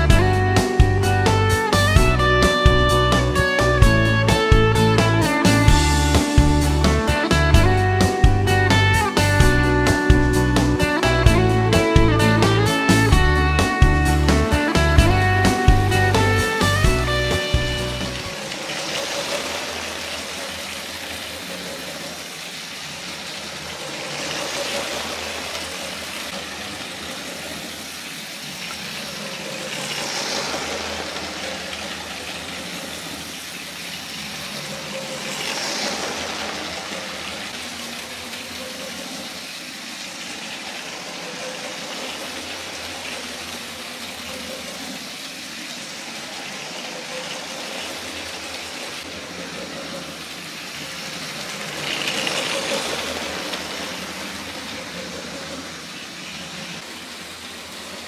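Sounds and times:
toy train motor whine: 0:00.0 - 0:58.0
toy train wheels rattling: 0:14.4 - 0:58.0.

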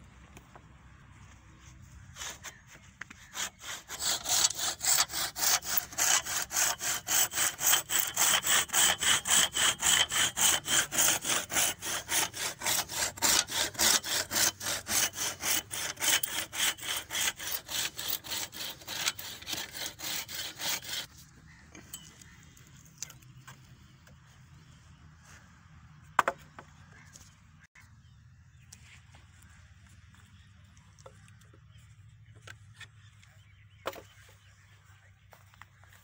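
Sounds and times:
hand saw cutting branch: 0:02.1 - 0:21.2.

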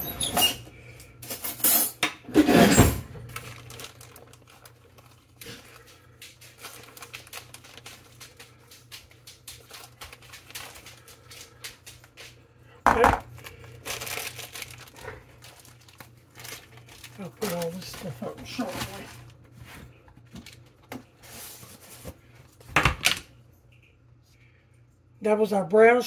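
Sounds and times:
plastic bag rustling: 0:03.0 - 0:12.4, 0:13.0 - 0:22.6.

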